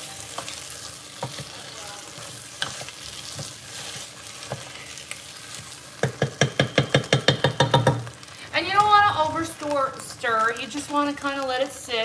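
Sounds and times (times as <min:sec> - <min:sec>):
onions sizzling in a pot: 0:00.0 - 0:12.0
wooden spoon knocking pot: 0:06.0 - 0:08.1.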